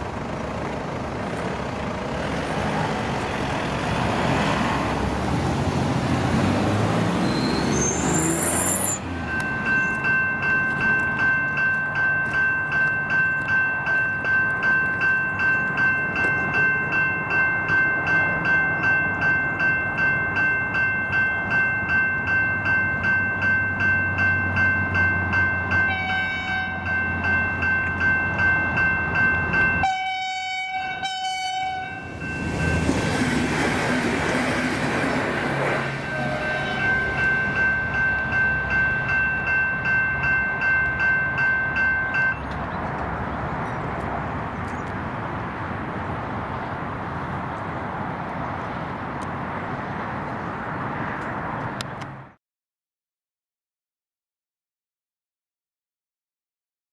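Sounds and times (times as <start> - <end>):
vehicle passing: 0.3 - 9.8, 32.0 - 38.8
level-crossing warning bells: 6.0 - 43.9
train horn blasts: 25.9 - 26.9, 29.8 - 32.1, 36.0 - 37.3.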